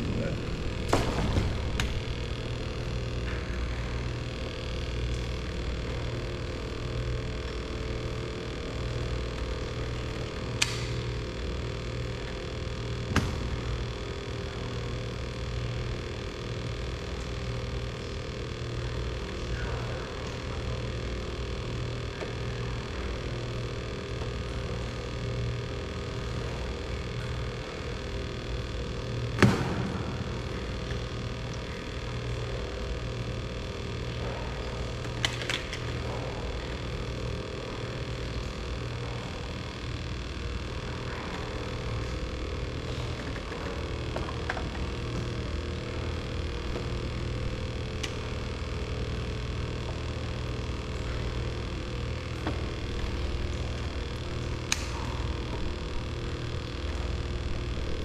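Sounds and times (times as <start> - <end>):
low mechanical hum: 0.0 - 58.0.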